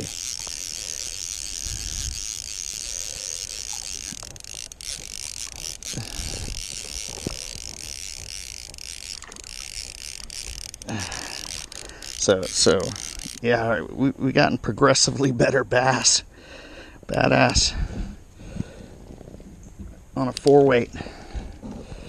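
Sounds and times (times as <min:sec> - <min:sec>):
fishing reel ratchet clicking: 0:00.0 - 0:13.8.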